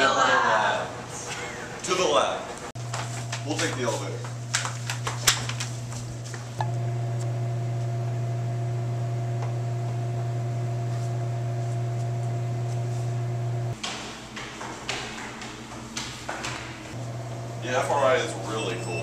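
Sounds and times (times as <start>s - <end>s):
steady low hum: 0.9s - 19.0s.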